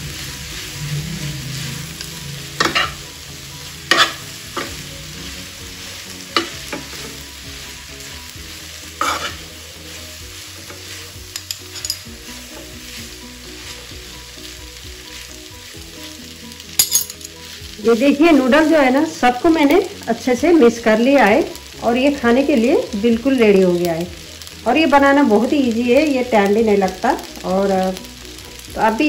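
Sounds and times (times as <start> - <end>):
noodles sizzling in a frying pan: 0.0 - 29.0
utensils clinking against pan: 2.6 - 3.0, 3.9 - 4.8, 9.0 - 9.4, 10.6 - 12.8, 16.6 - 18.2.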